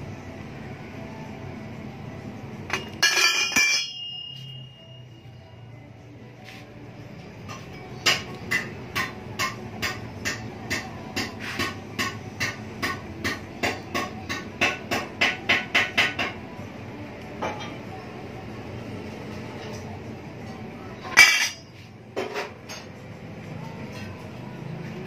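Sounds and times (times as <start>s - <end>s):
metal exhaust pipes tapped ringing: 2.7s - 5.1s.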